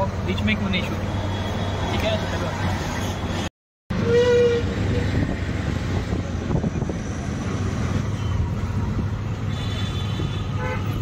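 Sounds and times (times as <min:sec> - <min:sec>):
road noise: 0:00.0 - 0:11.0
vehicle horn: 0:09.5 - 0:11.0.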